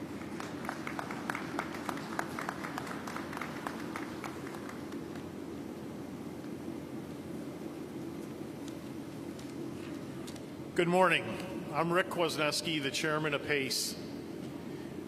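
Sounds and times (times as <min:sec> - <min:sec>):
scattered applause: 0:00.0 - 0:05.3
steady low hum: 0:00.0 - 0:15.0.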